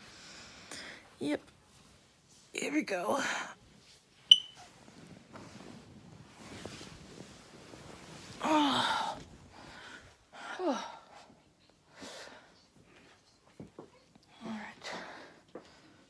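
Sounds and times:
bedding rustling: 0:03.6 - 0:10.3.

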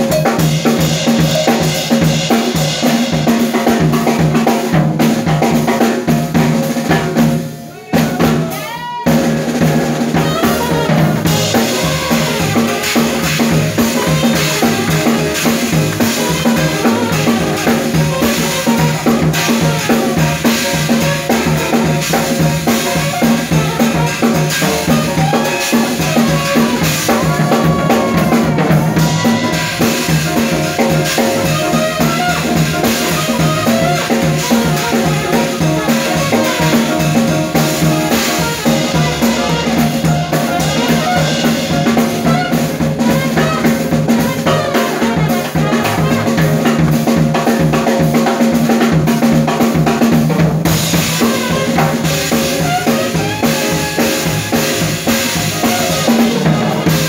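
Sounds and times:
drum kit playing: 0:00.0 - 0:57.0
upright bass: 0:09.1 - 0:57.0
trumpet lines: 0:10.1 - 0:46.9, 0:50.8 - 0:57.0.

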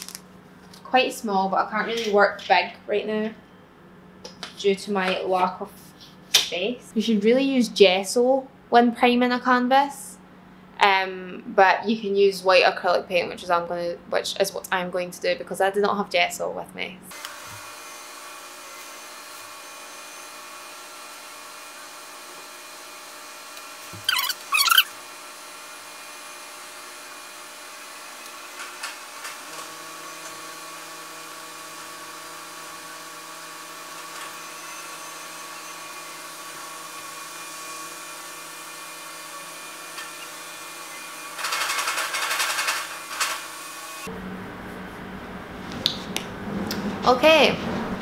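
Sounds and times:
steady mechanical hum: 0:00.0 - 0:48.0
brief scratchy sounds: 0:24.0 - 0:24.9.

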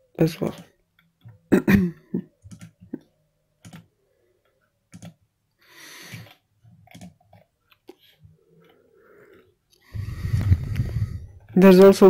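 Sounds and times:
computer mouse clicks: 0:02.4 - 0:03.9, 0:04.9 - 0:05.2, 0:06.1 - 0:09.8.

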